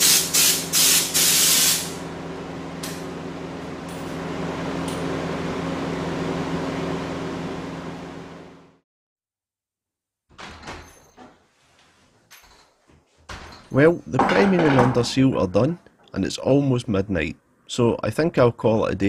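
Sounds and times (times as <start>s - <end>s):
spray gun hissing bursts: 0.0s - 2.0s
low machine hum: 1.3s - 8.8s.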